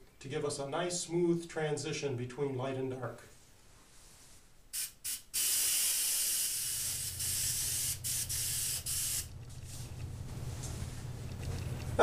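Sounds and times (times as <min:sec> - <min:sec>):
airbrush spraying hiss: 0:04.7 - 0:09.3.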